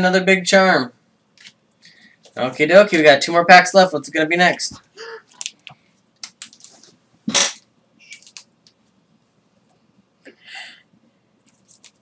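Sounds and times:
foil pack crinkling: 5.3 - 6.9, 11.4 - 12.0.

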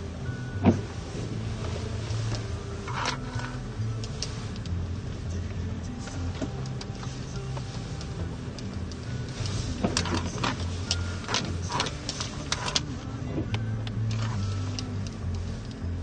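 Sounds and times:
car engine hum: 0.0 - 16.0
car knocks and rattles: 0.6 - 3.6, 6.3 - 14.4.

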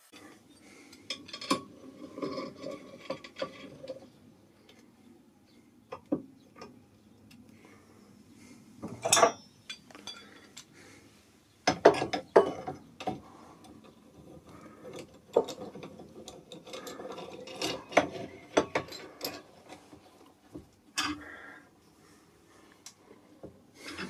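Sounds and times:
clamp screws clicking and scraping: 0.9 - 4.8, 11.7 - 20.1
metal clamps knocking: 8.8 - 10.4, 11.6 - 13.2, 14.2 - 19.8.

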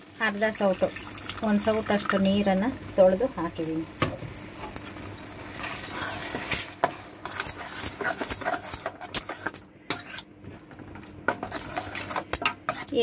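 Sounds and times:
ladle scraping and clinking pan: 5.5 - 10.2, 11.3 - 13.0.

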